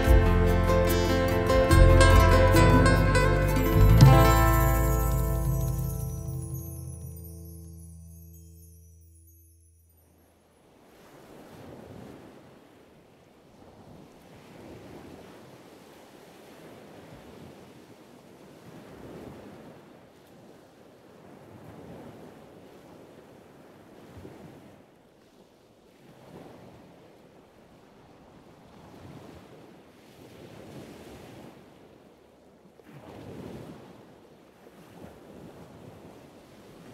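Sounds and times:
faint ocean surf: 10.4s - 36.9s.

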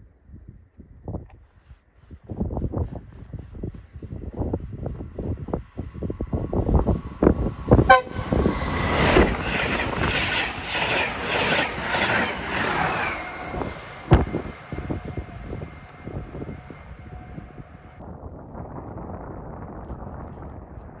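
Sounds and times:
wind buffeting microphone: 0.1s - 21.0s
train wheels rushing past: 5.8s - 18.0s
train horn toot: 7.9s - 8.6s.

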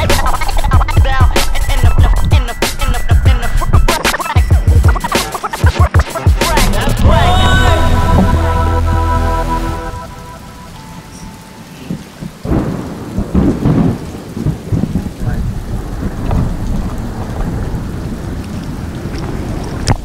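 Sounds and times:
music bed: 0.0s - 12.0s
rain: 0.0s - 20.0s
low rumbling on microphone: 6.7s - 9.3s, 12.0s - 20.0s.

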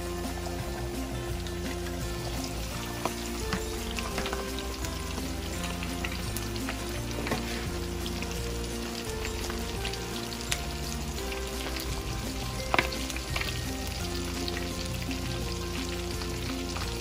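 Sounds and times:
deep-frying oil sizzling: 0.0s - 17.0s
oil crackles and pops: 0.3s - 17.0s.

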